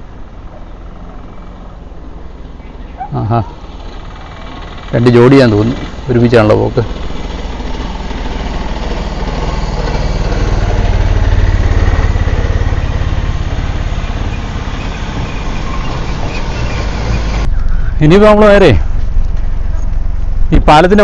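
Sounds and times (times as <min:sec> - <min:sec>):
small engine running: 0:03.4 - 0:17.5.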